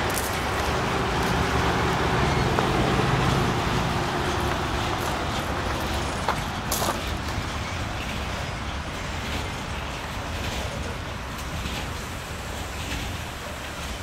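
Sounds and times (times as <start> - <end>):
freight train rolling on rails: 0.0 - 14.0.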